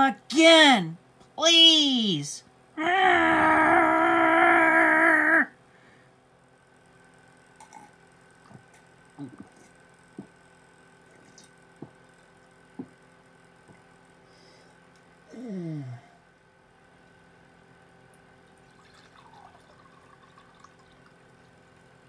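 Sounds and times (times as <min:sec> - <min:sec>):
person's voice: 0:00.0 - 0:03.8, 0:09.2 - 0:09.6
faint steady hum: 0:00.0 - 0:22.0.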